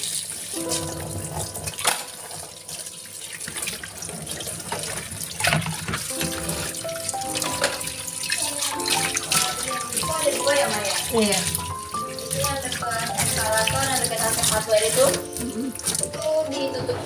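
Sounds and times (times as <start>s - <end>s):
tap water running into sink: 0.0s - 17.0s
background music with simple melody: 0.5s - 17.0s
dishes knocking: 4.7s - 6.8s.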